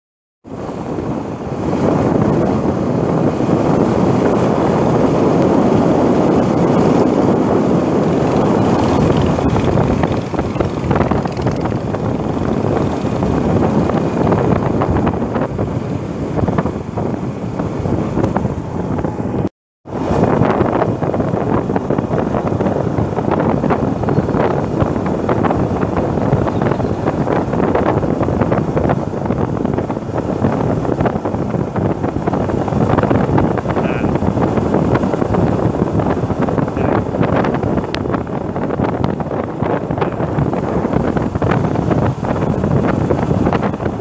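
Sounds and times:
road noise: 0.4 - 44.0
wind rushing over microphone: 0.4 - 44.0
motorcycle engine: 5.8 - 15.6.

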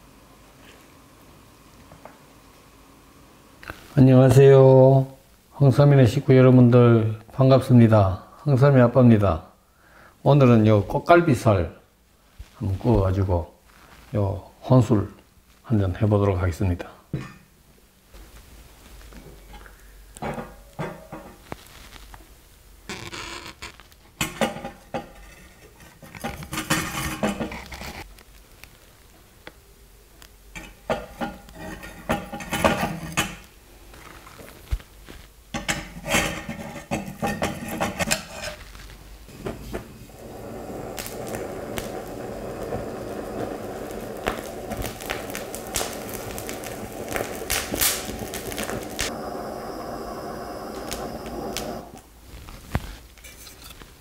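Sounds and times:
dishes and utensils clattering: 24.2 - 27.6
steady even sound: 40.2 - 52.0.

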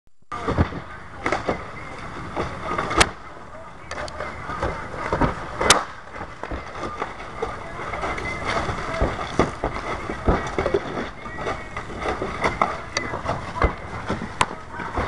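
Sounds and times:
sharp crack: 0.3 - 15.0
shingles being scraped and ripped up: 4.0 - 15.0.

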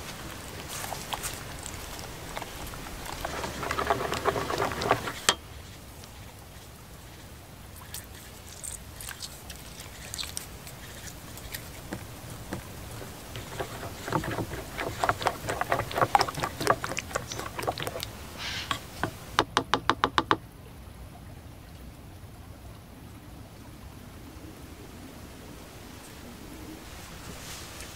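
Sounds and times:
stick whisking batter in bowl: 1.0 - 5.4, 7.8 - 19.4.

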